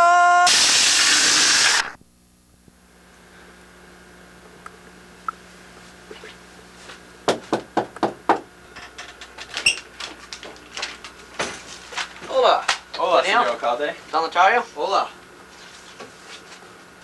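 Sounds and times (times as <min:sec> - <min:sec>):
knocks on wooden door: 0:07.3 - 0:08.5.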